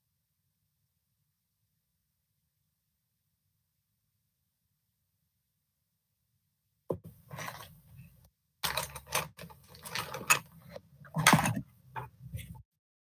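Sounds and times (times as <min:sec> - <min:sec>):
rustling and scraping: 0:06.9 - 0:12.6.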